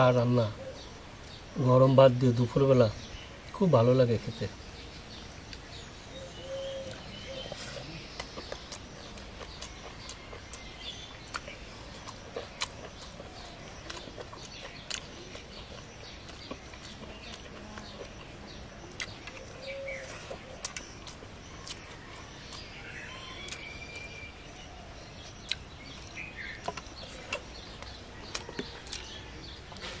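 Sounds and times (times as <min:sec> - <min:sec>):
birds chirping: 0:00.0 - 0:30.0
person chewing with mouth clicks: 0:08.0 - 0:22.7, 0:25.4 - 0:30.0.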